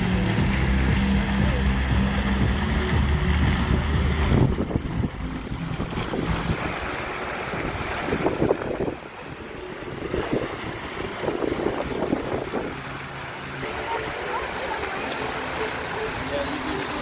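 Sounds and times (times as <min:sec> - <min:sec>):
fountain jets splashing water: 0:00.0 - 0:17.0
wind buffeting microphone: 0:02.4 - 0:12.8.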